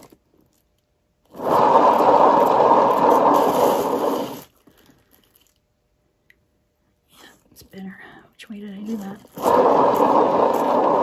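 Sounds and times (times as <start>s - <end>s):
painting turntable whirring: 1.3s - 4.5s, 8.6s - 11.0s.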